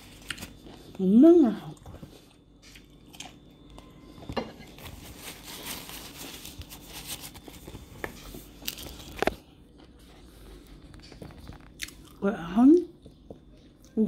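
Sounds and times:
person chewing food: 0.0 - 1.0, 1.7 - 5.0, 6.7 - 12.2.

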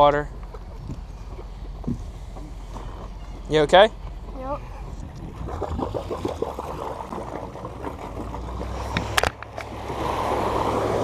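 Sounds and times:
low engine hum: 0.0 - 11.0
water lapping against boat hull: 0.0 - 11.0.

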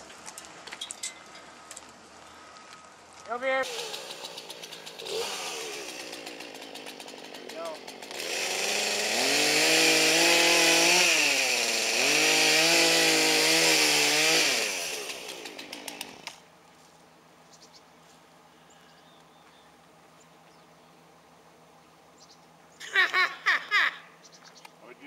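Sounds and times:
chainsaw revving: 3.6 - 16.4.

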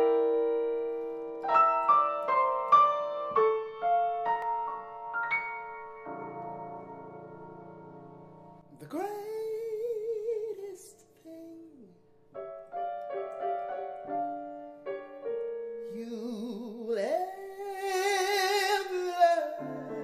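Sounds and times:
grand piano: 0.0 - 20.0
man singing with vibrato: 8.7 - 12.1, 15.8 - 20.0.

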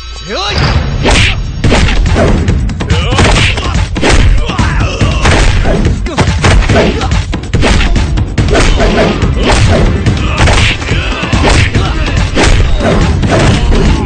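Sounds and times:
action background music: 0.0 - 14.0
punch and body-hit thuds: 1.1 - 4.5, 5.2 - 7.0, 7.6 - 10.8, 11.4 - 13.8.

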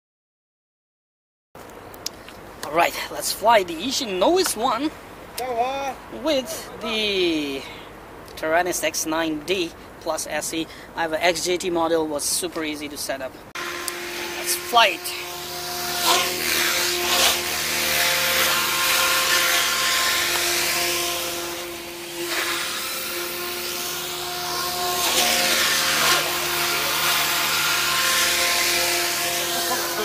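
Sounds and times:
small drone motors whining: 13.6 - 30.0.

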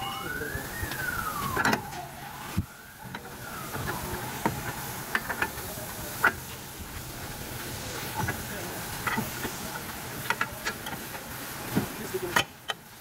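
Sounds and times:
rising and falling whine: 0.0 - 6.1
metal clanks and knocks: 9.0 - 9.6.

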